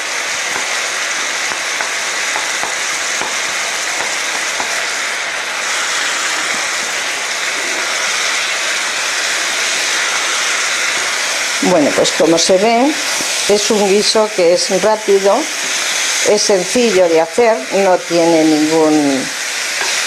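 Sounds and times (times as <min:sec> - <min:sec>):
food sizzling in oil: 0:00.0 - 0:20.0
wooden spatulas tapping and scraping: 0:19.8 - 0:20.0.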